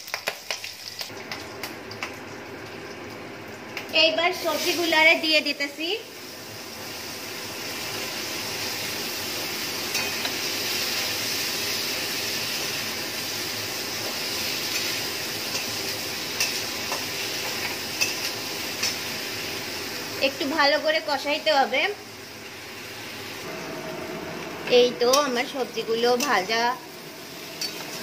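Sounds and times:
vegetables sizzling in hot oil: 0:00.0 - 0:28.0
metal spatula clinking on pan: 0:09.9 - 0:10.3, 0:27.6 - 0:28.0.

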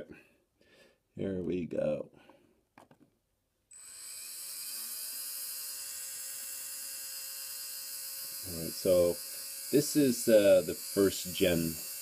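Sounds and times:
electric motor whine: 0:03.7 - 0:12.0.

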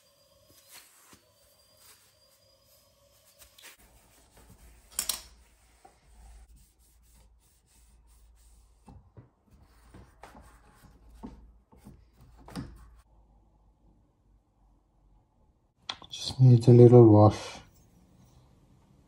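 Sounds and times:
cloth wiping over metal: 0:00.0 - 0:09.0.

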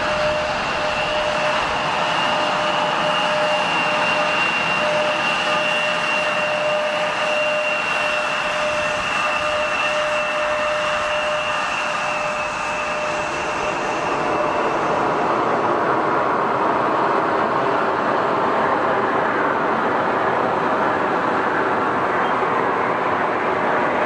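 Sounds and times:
jet engine whine: 0:00.0 - 0:24.0
loud rushing noise: 0:10.3 - 0:24.0.

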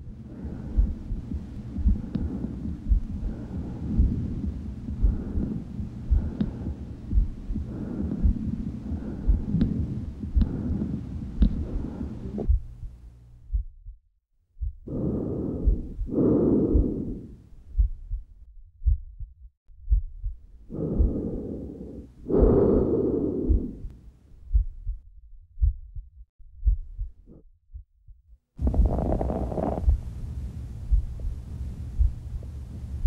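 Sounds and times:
breath sounds through a stethoscope: 0:00.0 - 0:12.6, 0:14.8 - 0:18.1, 0:20.6 - 0:24.0, 0:28.6 - 0:30.1
low heartbeat: 0:00.0 - 0:30.2, 0:30.8 - 0:33.0.

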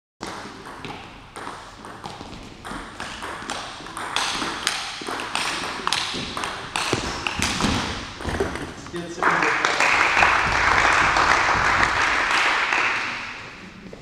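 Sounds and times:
table tennis ball on bats and table: 0:00.2 - 0:09.0.

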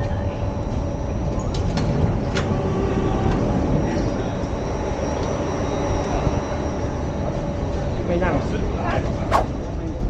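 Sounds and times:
subway train rumble and hum: 0:00.0 - 0:10.0
passengers' voices: 0:01.5 - 0:04.6.

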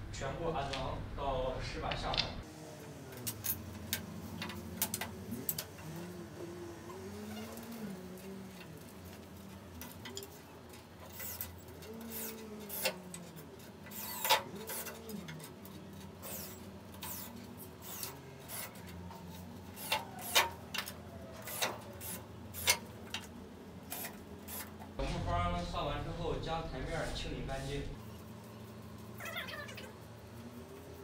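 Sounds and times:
clicks and knocks of tools: 0:03.1 - 0:06.1, 0:06.9 - 0:25.0
cordless drill driving screws: 0:16.2 - 0:18.7.

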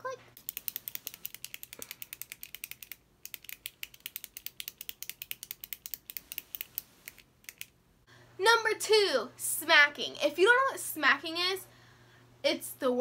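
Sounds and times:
click pen clicking: 0:00.4 - 0:07.7.

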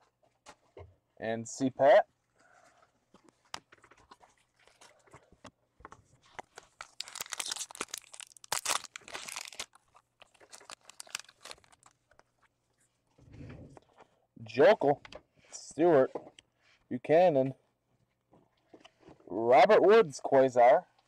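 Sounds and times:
foil pack tearing and crinkling: 0:06.3 - 0:12.0.

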